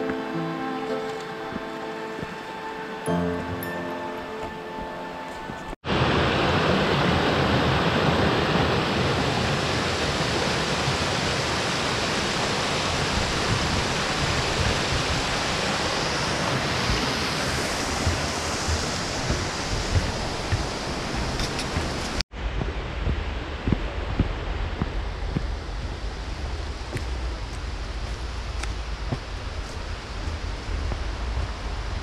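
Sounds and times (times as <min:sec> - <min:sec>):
stream rushing over rocks: 0:05.9 - 0:32.0.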